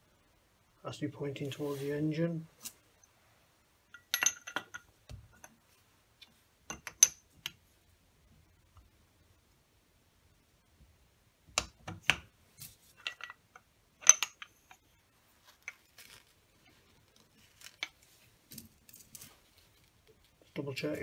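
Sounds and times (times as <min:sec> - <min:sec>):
metal clink with ring: 0:03.9 - 0:04.8.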